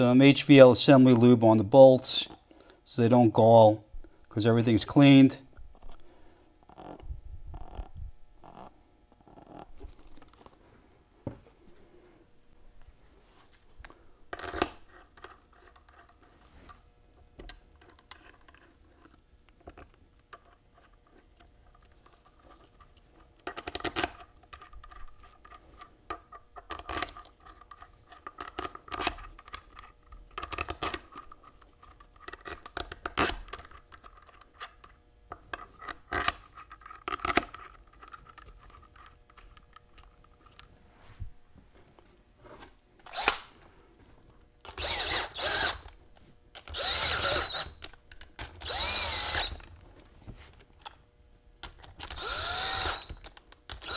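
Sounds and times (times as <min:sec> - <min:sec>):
metal bolts clinking and scraping: 0:21.7 - 0:40.6.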